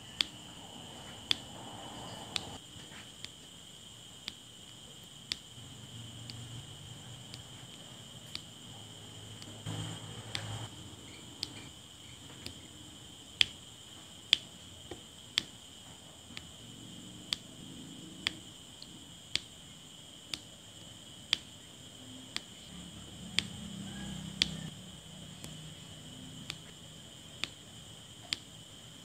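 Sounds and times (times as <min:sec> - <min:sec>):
faint high whine: 0:00.0 - 0:29.0
pen tapping small sharp clicks: 0:07.2 - 0:07.5, 0:08.2 - 0:08.5, 0:14.3 - 0:15.6, 0:20.3 - 0:20.5, 0:26.4 - 0:26.7, 0:28.2 - 0:28.5.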